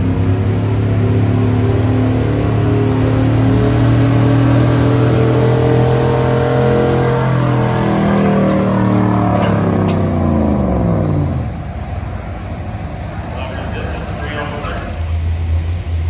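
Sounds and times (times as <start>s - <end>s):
pickup engine at high revs: 0.0s - 12.1s.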